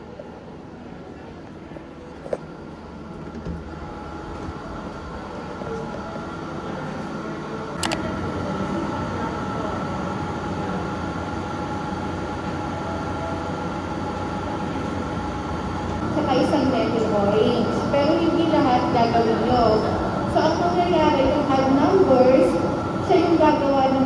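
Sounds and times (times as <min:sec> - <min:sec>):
constant hum: 0:00.0 - 0:24.0
sharp click: 0:07.8 - 0:08.0.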